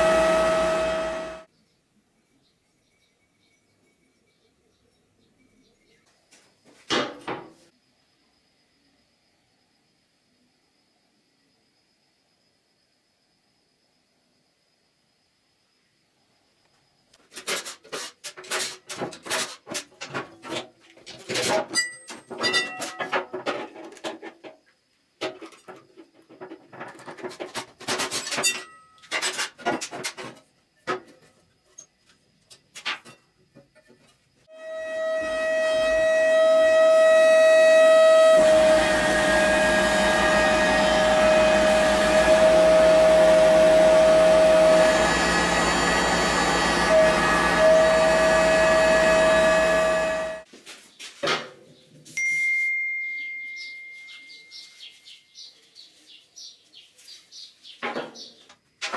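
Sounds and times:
small electric power tool whine: 0:00.0 - 0:01.5, 0:34.5 - 0:50.5.

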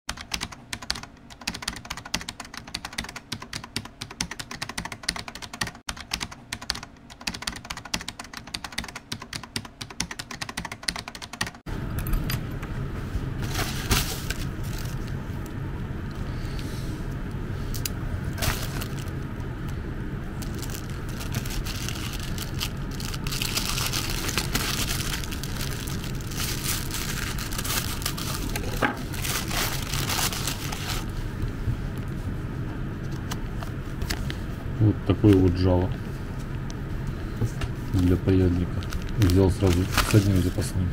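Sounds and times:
plastic bag crinkling and tearing: 0:18.4 - 0:19.2, 0:20.4 - 0:31.1, 0:38.6 - 0:40.7.

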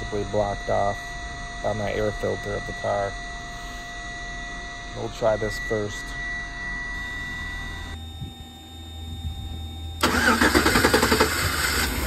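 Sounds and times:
low steady hum: 0:00.0 - 0:12.0
starter cranking engine: 0:10.0 - 0:12.0.

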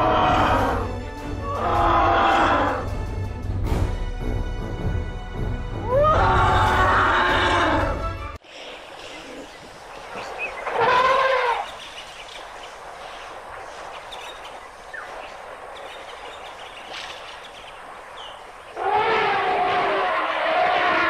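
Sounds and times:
elephant trumpeting: 0:00.0 - 0:02.9, 0:05.8 - 0:08.1, 0:10.6 - 0:11.8, 0:18.7 - 0:21.0
faint bird chirps: 0:08.5 - 0:18.8.

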